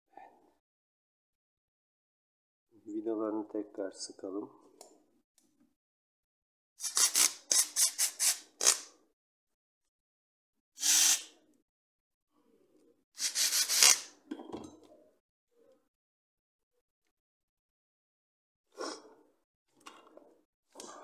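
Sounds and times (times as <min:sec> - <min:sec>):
electric screwdriver driving screws: 0:10.8 - 0:11.3, 0:13.2 - 0:14.1.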